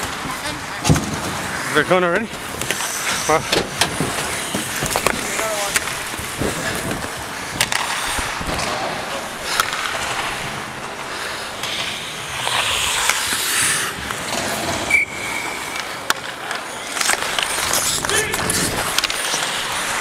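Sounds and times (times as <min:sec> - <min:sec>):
skates scraping on ice: 0:00.0 - 0:20.0
sticks and puck clacking: 0:00.0 - 0:20.0.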